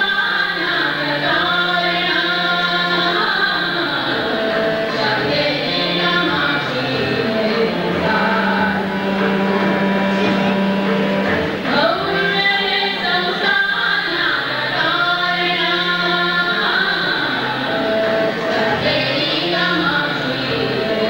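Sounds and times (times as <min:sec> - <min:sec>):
women singing a devotional song: 0:00.0 - 0:09.2, 0:11.7 - 0:21.0.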